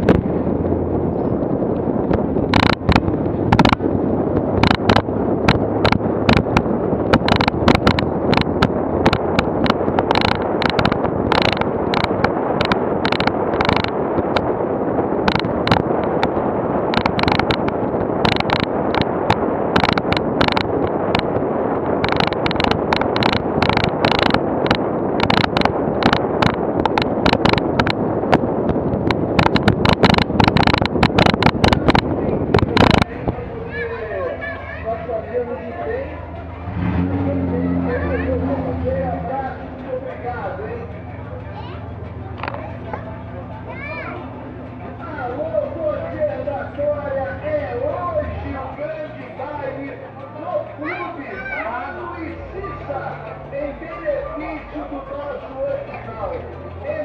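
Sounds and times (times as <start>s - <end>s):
vehicle rolling over cobblestones: 0.0s - 57.0s
rattling knocks of camera mount: 2.5s - 3.8s.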